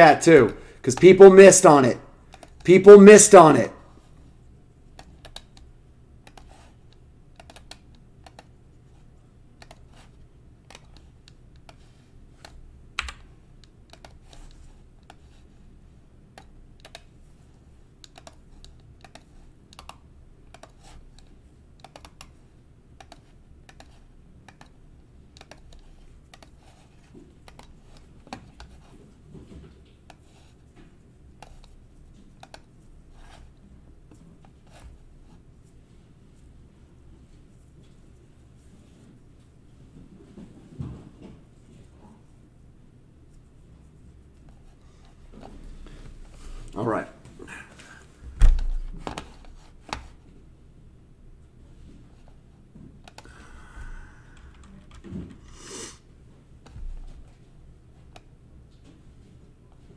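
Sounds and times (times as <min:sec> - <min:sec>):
computer keyboard keystrokes: 0:02.3 - 0:02.6, 0:04.9 - 0:06.5, 0:07.3 - 0:08.5, 0:09.6 - 0:09.9, 0:10.7 - 0:11.8, 0:12.4 - 0:15.2, 0:16.3 - 0:17.1, 0:18.0 - 0:22.4, 0:23.0 - 0:24.8, 0:25.4 - 0:26.6, 0:27.4 - 0:28.8, 0:32.4 - 0:32.7, 0:54.3 - 0:55.4.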